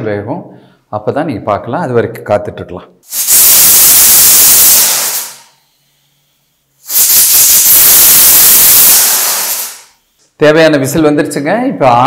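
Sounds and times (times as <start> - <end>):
pressure cooker whistling: 3.1 - 5.5, 6.8 - 10.0.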